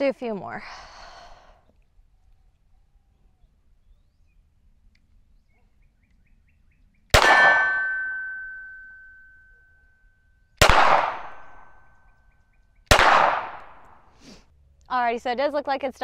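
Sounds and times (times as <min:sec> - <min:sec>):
pistol shots: 0:07.1 - 0:08.2, 0:10.6 - 0:11.8, 0:12.9 - 0:14.0
metallic ring of steel target: 0:07.2 - 0:09.6, 0:10.9 - 0:11.9.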